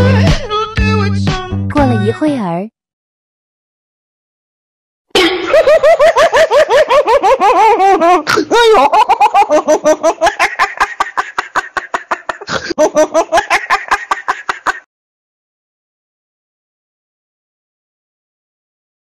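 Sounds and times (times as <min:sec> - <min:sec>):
high-pitched human laughter: 0:05.2 - 0:14.9.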